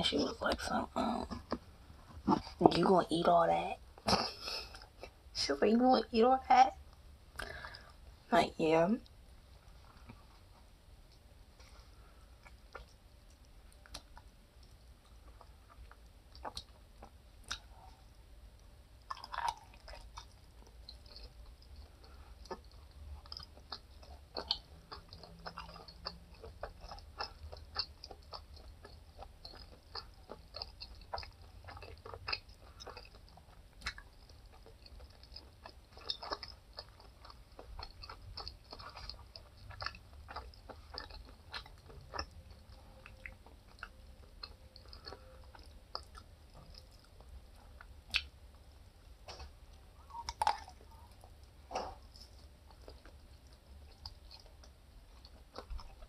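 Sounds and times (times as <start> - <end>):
chewing and biting food: 12.3 - 18.1, 19.0 - 56.0.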